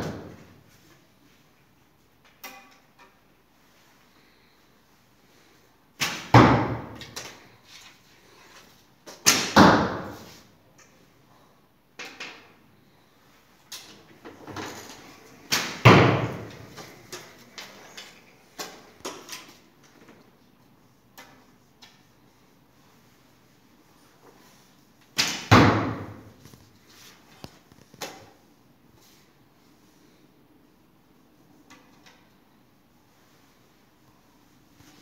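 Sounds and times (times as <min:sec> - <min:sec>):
arrow thudding into target: 0:06.0 - 0:07.0, 0:15.5 - 0:16.5, 0:25.2 - 0:26.3.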